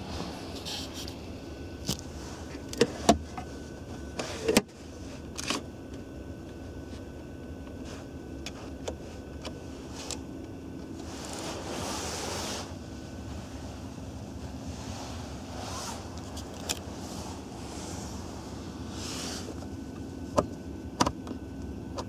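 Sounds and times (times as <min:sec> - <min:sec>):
steady low hum: 0:00.0 - 0:22.0
rustling: 0:10.9 - 0:19.8.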